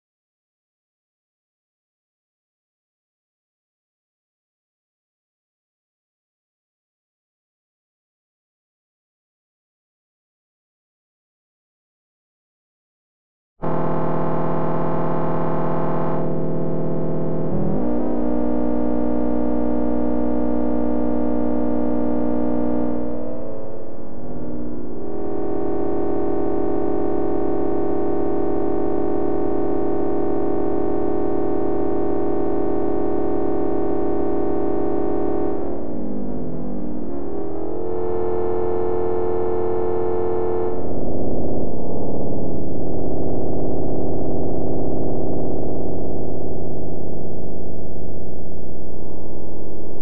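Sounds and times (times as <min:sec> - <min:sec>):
buzzy synthesizer drone: 0:13.6 - 0:47.5.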